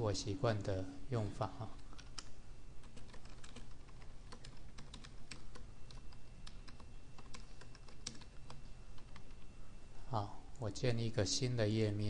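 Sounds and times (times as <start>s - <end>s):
typing on computer keyboard: 2.0s - 9.4s.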